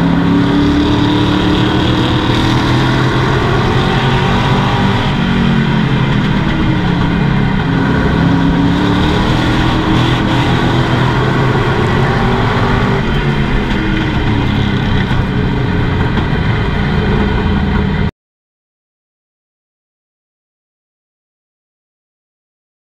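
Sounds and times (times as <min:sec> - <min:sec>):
race truck engine from inside cab: 0:00.0 - 0:18.1.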